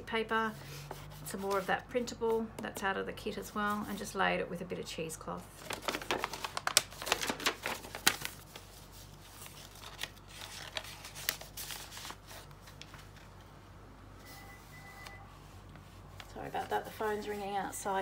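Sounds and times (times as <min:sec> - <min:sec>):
paper rustling and crinkling: 0:05.5 - 0:13.5.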